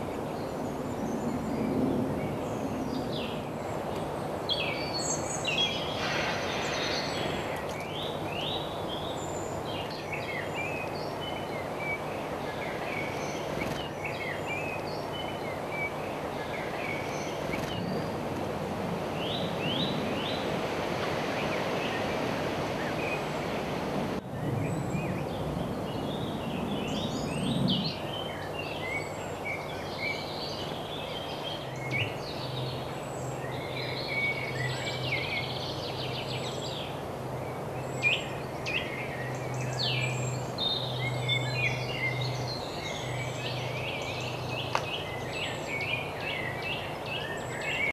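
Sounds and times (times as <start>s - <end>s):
birds chirping and singing: 4.5s - 18.3s, 24.5s - 47.9s
background rumble: 5.2s - 9.9s
low hum: 5.3s - 9.9s.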